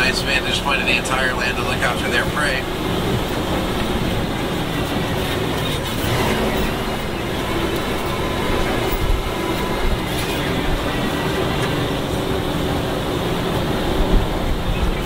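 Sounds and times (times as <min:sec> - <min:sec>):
truck engine and road rumble: 0:00.0 - 0:15.0.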